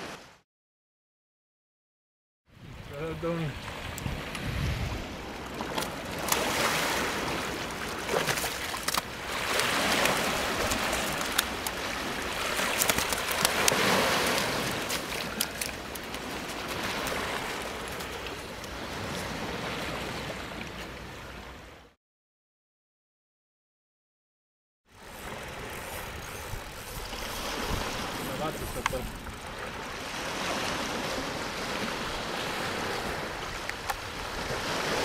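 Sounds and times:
surf breaking on beach: 0:02.9 - 0:15.6, 0:25.2 - 0:35.0.

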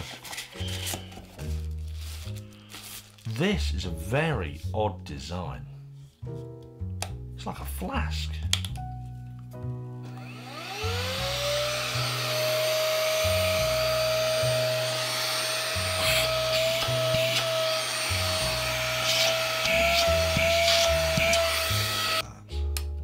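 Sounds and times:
handheld vacuum motor whine: 0:10.0 - 0:22.2.

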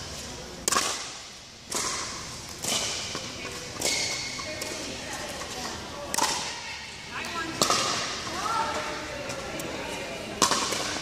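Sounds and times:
paddles hitting plastic ball: 0:00.6 - 0:04.8, 0:06.1 - 0:06.6, 0:07.5 - 0:08.3, 0:10.4 - 0:11.0.

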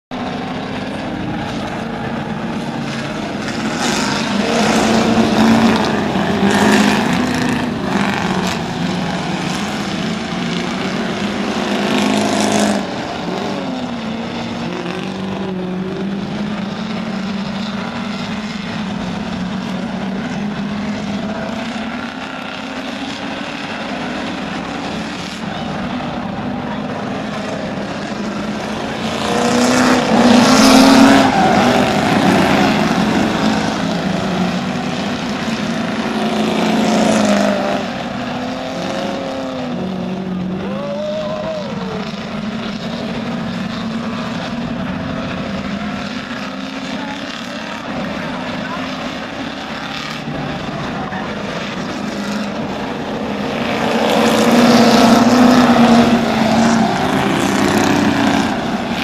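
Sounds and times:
race car engines droning: 0:00.0 - 0:59.0.

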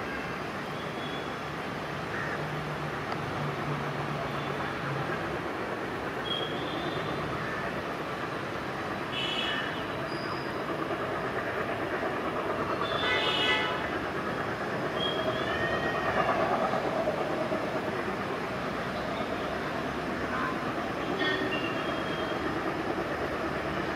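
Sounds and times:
diesel locomotive rumble: 0:00.0 - 0:23.9
train horn: 0:09.1 - 0:10.0, 0:12.8 - 0:13.9, 0:20.3 - 0:22.4.

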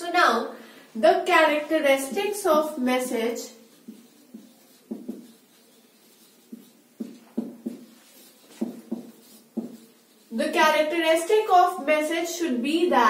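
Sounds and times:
marker pen squeaking on whiteboard: 0:03.2 - 0:10.4.

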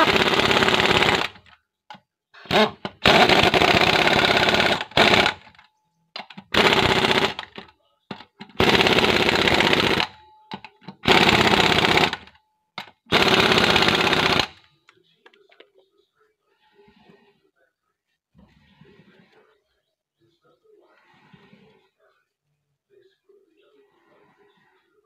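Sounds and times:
impact wrench hammering lug nuts: 0:00.0 - 0:01.5, 0:02.4 - 0:05.5, 0:06.2 - 0:07.6, 0:08.5 - 0:14.6.

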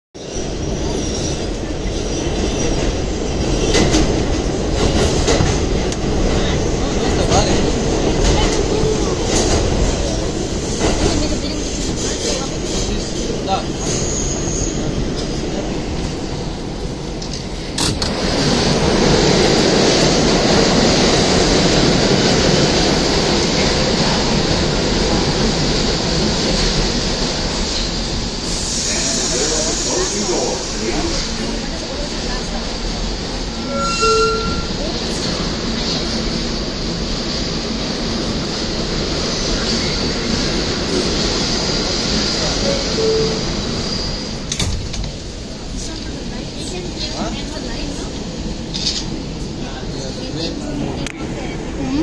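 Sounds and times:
train wheels rumbling on rail: 0:00.2 - 0:52.0.

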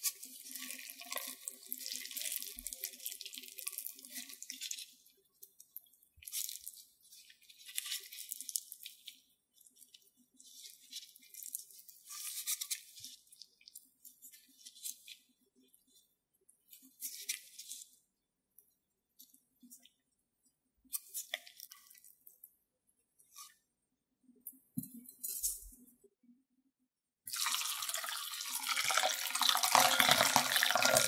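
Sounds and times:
wet crackling and squishing of roe: 0:00.0 - 0:15.3, 0:20.9 - 0:22.5.

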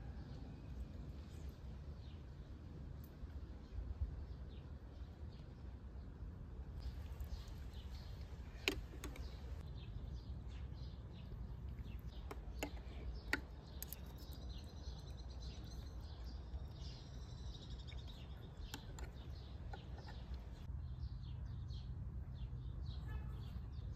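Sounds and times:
birds chirping and warbling: 0:06.8 - 0:23.9.

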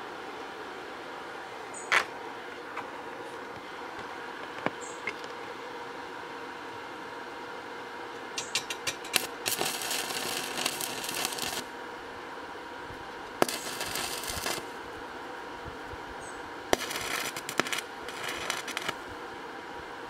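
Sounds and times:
arc welding crackling: 0:08.3 - 0:11.8, 0:12.9 - 0:15.1, 0:15.8 - 0:19.2
welding arc snap: 0:08.4 - 0:11.7, 0:13.3 - 0:14.8, 0:16.8 - 0:19.0.

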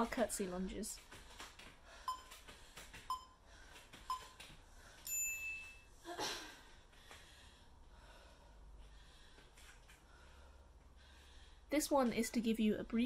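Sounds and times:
timer beeps: 0:02.0 - 0:02.4, 0:03.0 - 0:03.4, 0:04.1 - 0:04.4
longer higher timer beep: 0:02.1 - 0:02.3.

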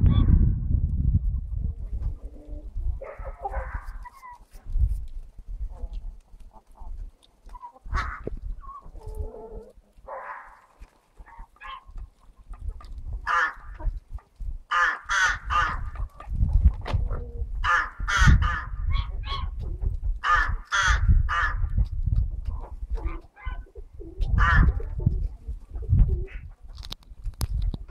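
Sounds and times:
crows cawing: 0:13.3 - 0:13.8, 0:14.7 - 0:15.8, 0:17.6 - 0:18.8, 0:20.2 - 0:21.6.

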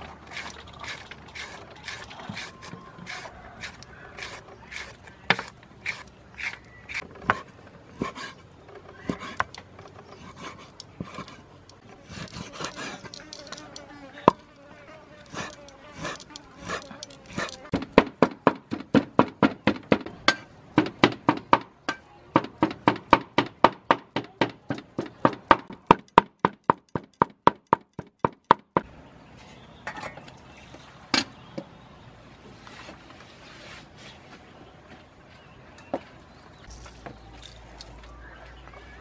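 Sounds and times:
cleaver chopping meat on wood: 0:15.3 - 0:21.7, 0:22.4 - 0:28.9.

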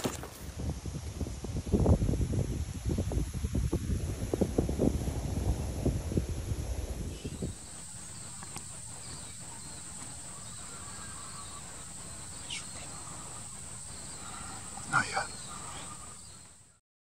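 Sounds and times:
wind buffeting microphone: 0:00.0 - 0:16.6
quiet field ambience: 0:04.6 - 0:16.8
high-pitched insect drone: 0:07.1 - 0:16.7.

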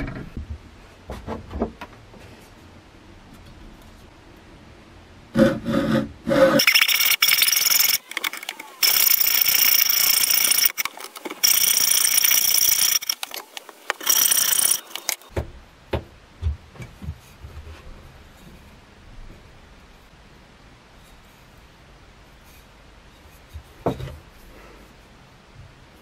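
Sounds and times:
hacksaw cutting wood: 0:05.4 - 0:15.2.

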